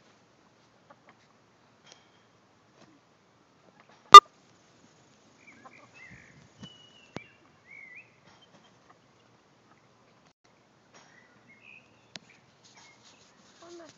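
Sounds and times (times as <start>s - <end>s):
hens chirping and calling: 5.4s - 6.3s.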